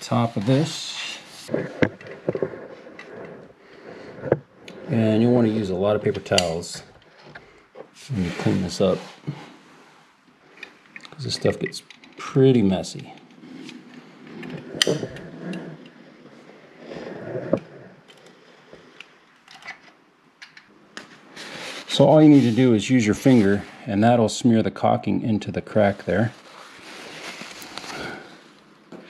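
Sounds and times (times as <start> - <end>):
soft rustling scrape: 0.0 - 10.2, 12.2 - 18.8, 21.1 - 24.2, 25.7 - 28.7.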